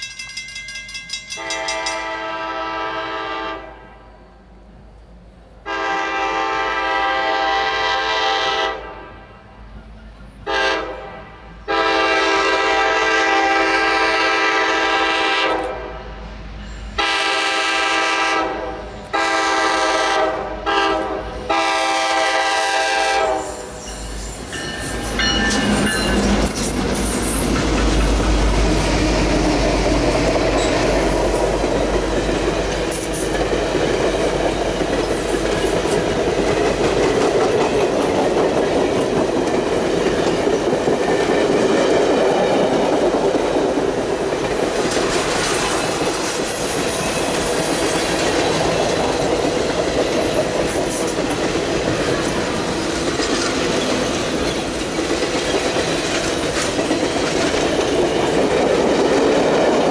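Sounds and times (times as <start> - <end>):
train wheels clickety-clack: 0.0 - 2.5, 9.7 - 10.9, 16.4 - 59.9
locomotive horn blasts: 1.4 - 4.2, 5.6 - 9.4, 10.5 - 16.0, 17.0 - 23.8.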